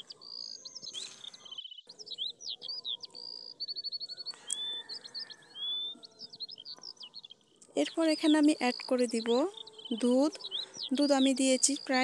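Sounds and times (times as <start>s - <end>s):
buzzy bird trill: 0.0s - 12.0s
small birds chirping and singing: 0.0s - 12.0s.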